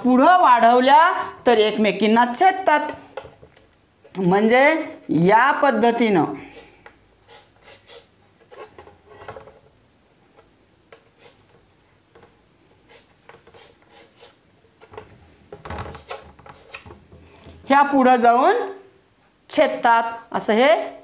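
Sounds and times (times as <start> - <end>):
chalk scraping on blackboard: 6.5 - 9.3, 11.1 - 11.5, 12.8 - 14.4, 16.0 - 16.8.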